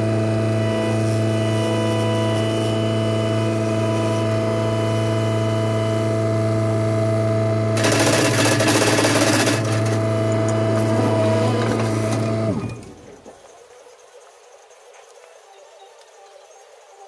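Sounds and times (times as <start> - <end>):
diesel engine running: 0.0 - 13.2
engine spinning down: 0.0 - 13.2.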